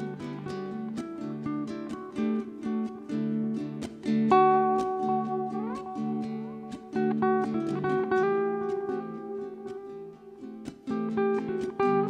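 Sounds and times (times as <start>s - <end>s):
ukuleles playing: 0.0s - 12.0s.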